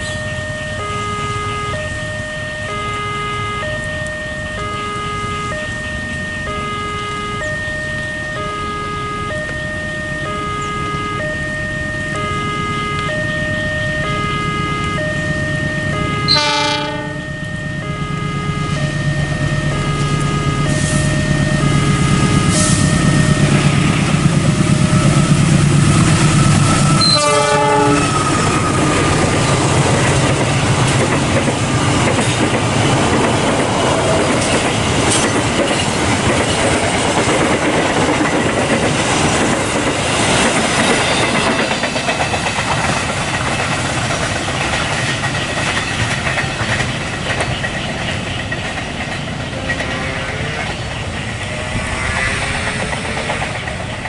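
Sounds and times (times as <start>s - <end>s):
locomotive engine hum: 0.0s - 54.0s
train horn: 12.0s - 23.8s, 26.4s - 29.7s, 49.4s - 53.7s
train wheels clattering on rails: 21.7s - 54.0s.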